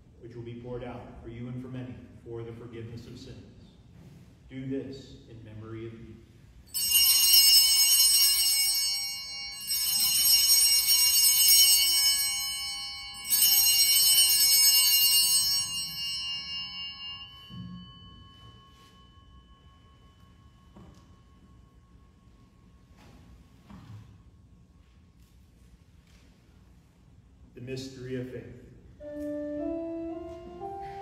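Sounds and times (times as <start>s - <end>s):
altar bells ringing: 6.7s - 24.9s.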